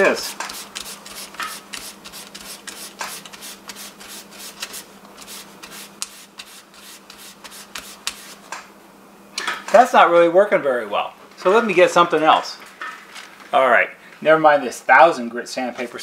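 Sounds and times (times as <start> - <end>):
sandpaper scratching on wire: 0.0 - 8.5.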